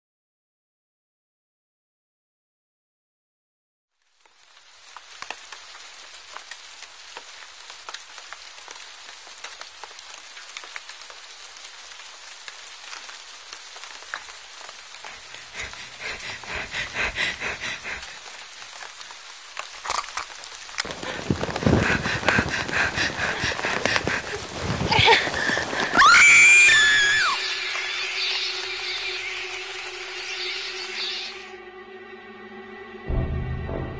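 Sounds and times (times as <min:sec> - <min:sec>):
steady rain falling: 0:03.9 - 0:31.6
drip and patter clicks: 0:05.0 - 0:26.0.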